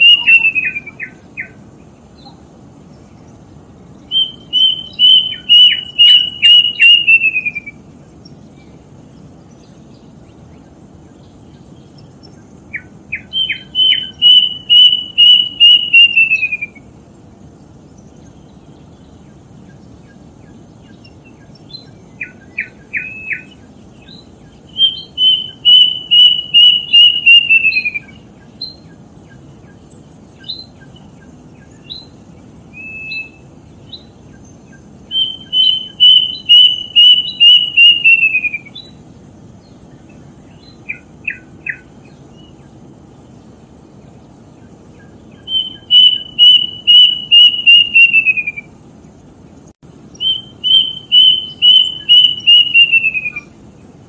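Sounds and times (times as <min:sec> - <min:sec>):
cuckoo whistling song: 0:00.0 - 0:01.6, 0:04.0 - 0:07.9, 0:12.7 - 0:16.9, 0:19.7 - 0:39.0, 0:40.5 - 0:42.6, 0:44.9 - 0:48.8, 0:50.1 - 0:53.6
low hiss: 0:00.0 - 0:54.0.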